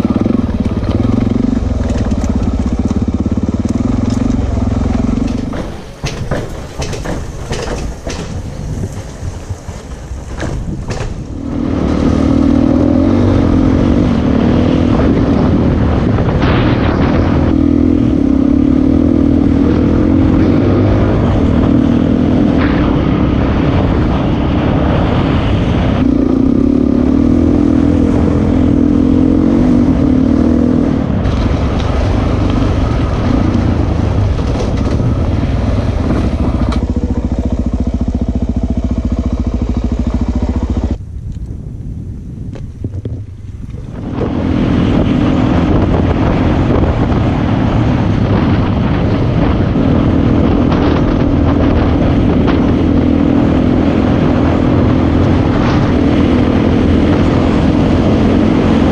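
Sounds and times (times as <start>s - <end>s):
motorcycle engine: 0.0s - 58.9s
knocks from stony ground: 4.9s - 11.4s.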